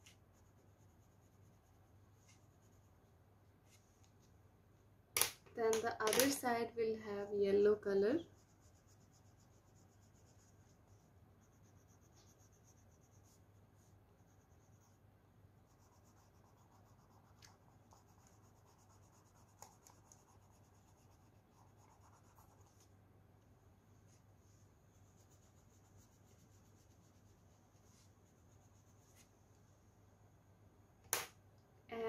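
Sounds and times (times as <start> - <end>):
colour scratching on paper: 0.0 - 4.0, 8.1 - 15.0, 15.6 - 22.9, 24.0 - 29.4
low steady hum: 0.0 - 32.0.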